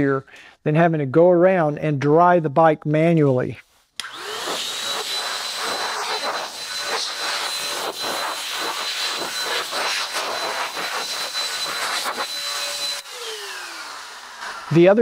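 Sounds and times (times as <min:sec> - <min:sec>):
air dryer blowing with motor whine: 0:04.0 - 0:15.0.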